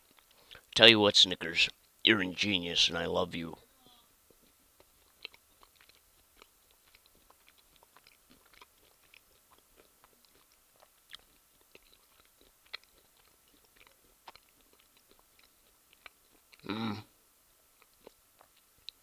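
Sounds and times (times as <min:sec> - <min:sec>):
chewing mouth clicks: 0:04.3 - 0:16.7, 0:17.8 - 0:19.0.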